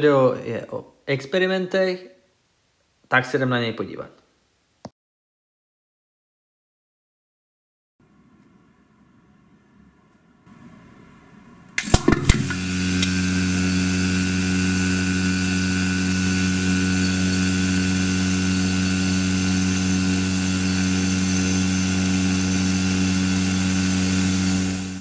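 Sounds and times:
vacuum pump humming and hissing: 11.8 - 25.0.

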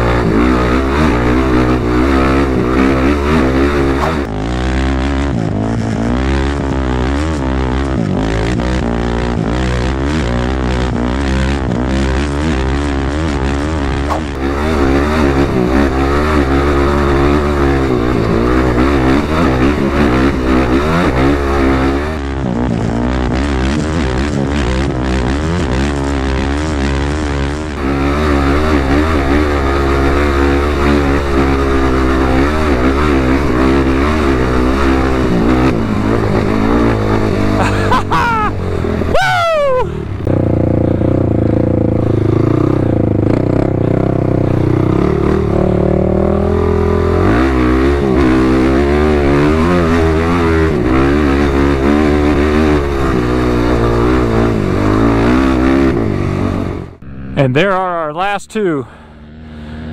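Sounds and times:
atv engine revving: 0.0 - 59.9
quick falling whines: 38.0 - 40.1.

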